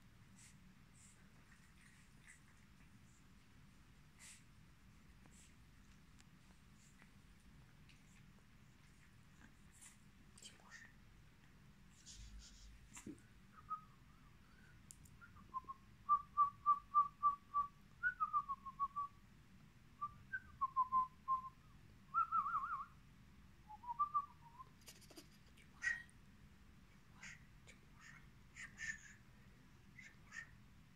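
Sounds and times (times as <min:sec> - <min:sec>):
soft clicks: 0:14.8 - 0:15.2.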